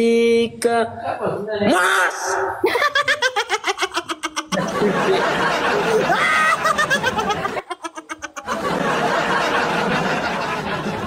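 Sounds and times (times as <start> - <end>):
men laughing hard: 2.6 - 11.0.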